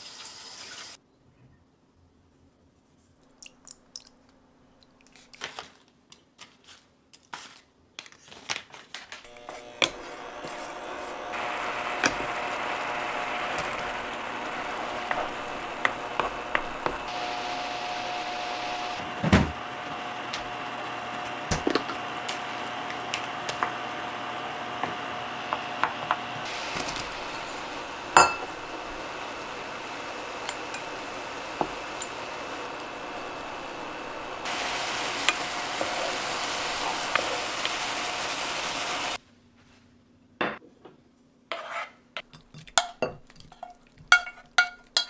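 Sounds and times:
faint high whine from hob: 0:09.3 - 0:39.2
utensils clinking against pan: 0:28.2 - 0:28.5, 0:42.2 - 0:45.0.

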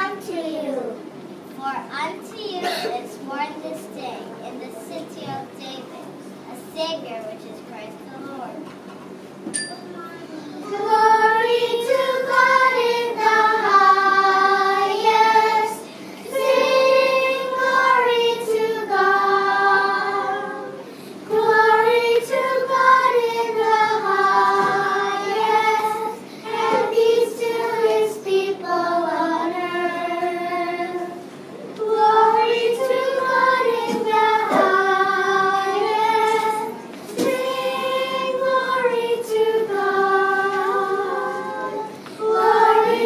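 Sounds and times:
children's choir singing: 0:10.6 - 0:43.0.

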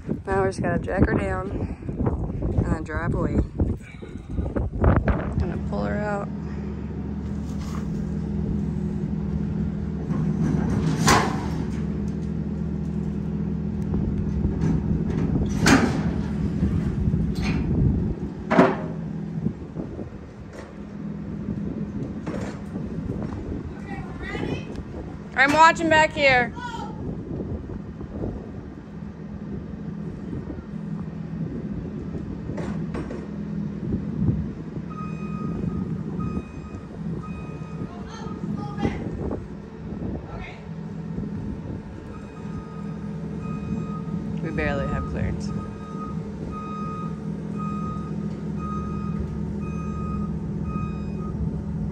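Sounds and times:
tow truck engine running: 0:00.0 - 0:51.9
alarm beeping: 0:34.9 - 0:38.5, 0:42.0 - 0:51.5.

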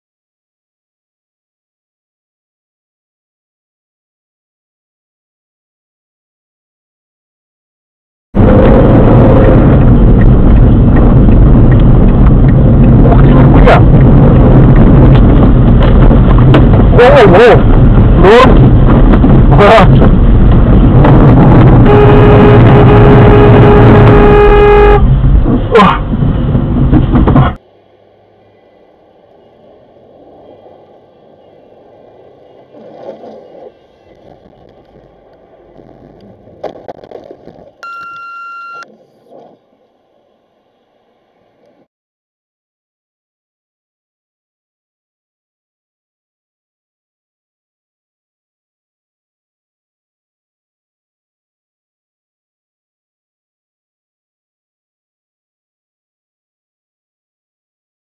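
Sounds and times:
car road and engine rumble: 0:08.4 - 0:41.9
steady electronic beep: 0:37.8 - 0:38.9.

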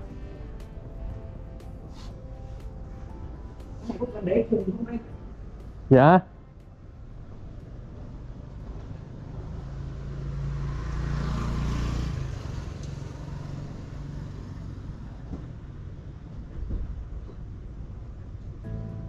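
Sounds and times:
traffic engine hum: 0:00.0 - 0:16.6
vehicle passing close by: 0:06.8 - 0:15.7.

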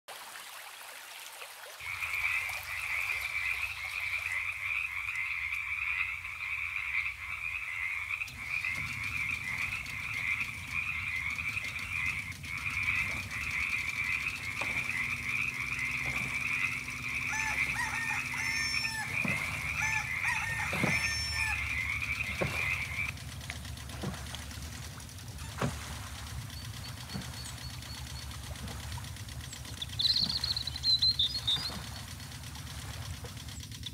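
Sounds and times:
frogs croaking trill: 0:01.8 - 0:33.9
short chirping calls: 0:08.2 - 0:23.1, 0:29.4 - 0:32.3.

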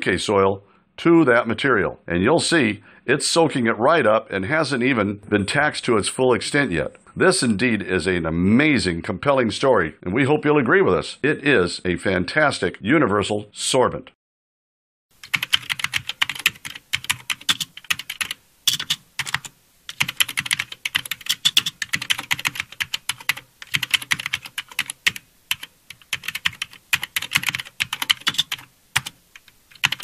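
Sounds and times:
keyboard key clicks: 0:15.3 - 0:22.6.

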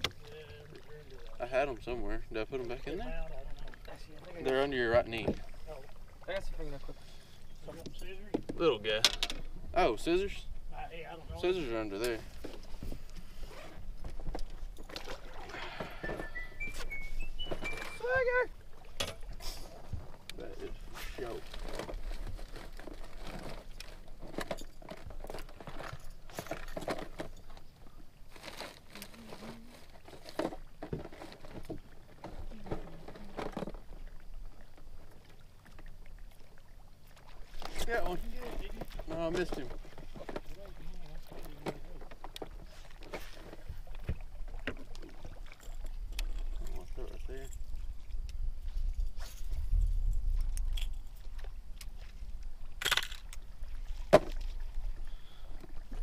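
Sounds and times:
fishing gear clicking and rattling: 0:07.8 - 0:09.5, 0:11.9 - 0:18.2, 0:21.2 - 0:33.9, 0:44.9 - 0:47.8, 0:49.0 - 0:53.5
fishing rod clicks and knocks: 0:07.8 - 0:09.5, 0:52.8 - 0:53.4
wind rumble on microphone: 0:47.5 - 0:52.6.

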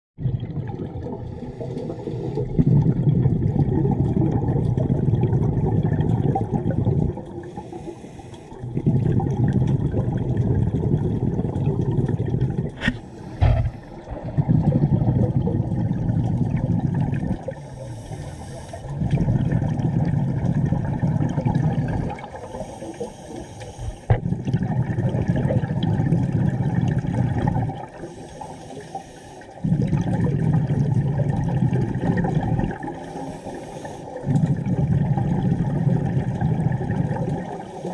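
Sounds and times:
exhaled bubbles underwater: 0:00.2 - 0:37.9
regulator inhalation hiss: 0:07.5 - 0:08.5, 0:17.6 - 0:19.0, 0:22.4 - 0:24.1, 0:28.0 - 0:29.6, 0:33.0 - 0:34.2.

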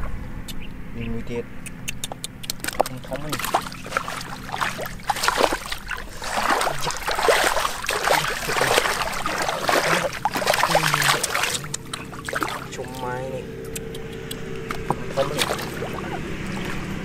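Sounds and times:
hands splashing in muddy water: 0:02.4 - 0:13.0, 0:14.7 - 0:17.0.

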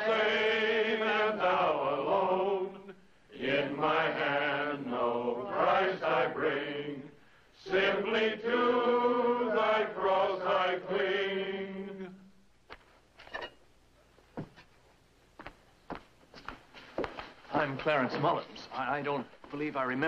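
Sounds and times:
congregation singing a hymn: 0:00.0 - 0:12.2.

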